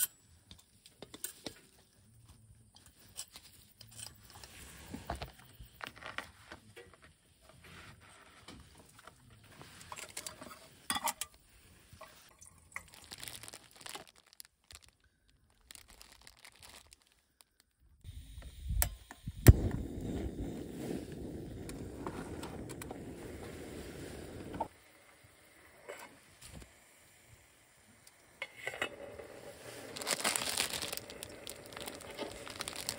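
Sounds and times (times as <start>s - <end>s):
plastic packet crinkling: 12.4s - 17.9s, 29.9s - 32.9s
gas stove burner hissing: 18.0s - 30.0s.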